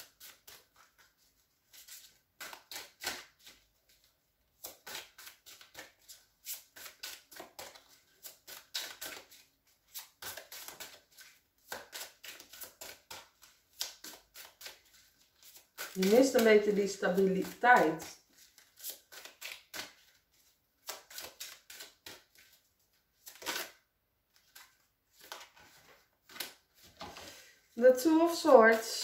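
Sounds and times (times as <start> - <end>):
cards being shuffled: 0.0 - 27.4.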